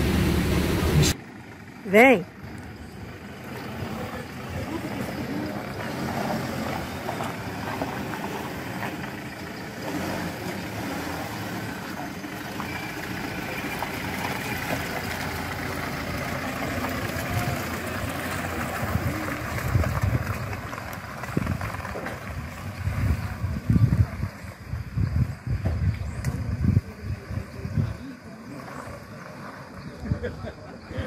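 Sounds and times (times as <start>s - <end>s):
pickup truck engine driving past: 0.0s - 30.9s
wind buffeting microphone: 18.7s - 28.0s.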